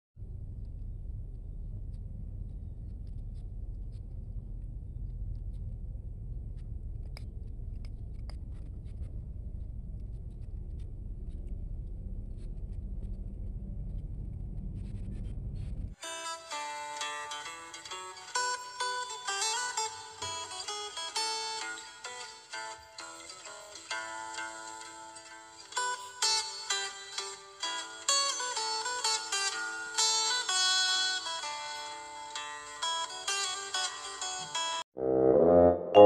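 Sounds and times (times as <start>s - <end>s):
steady low rumble: 0.2s - 16.0s
plucked-string music: 16.0s - 34.8s.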